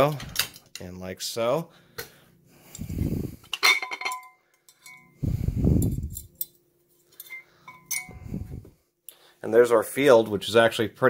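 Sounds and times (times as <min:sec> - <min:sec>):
metallic clink with ring: 0:03.7 - 0:08.5.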